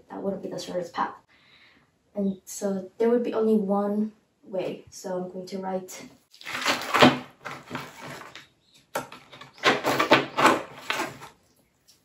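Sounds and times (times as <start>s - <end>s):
rustling handling sounds: 6.3s - 12.0s.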